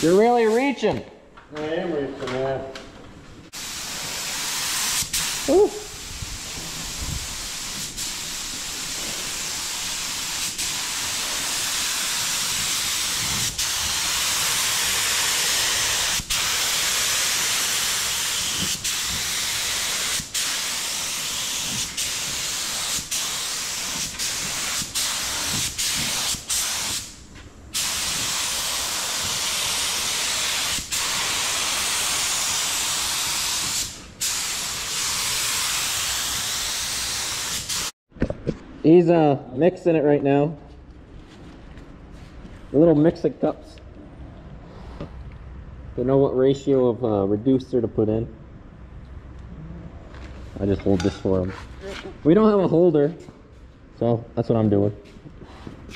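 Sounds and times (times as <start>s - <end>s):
paint spray gun hissing: 3.6s - 27.2s, 27.8s - 37.9s.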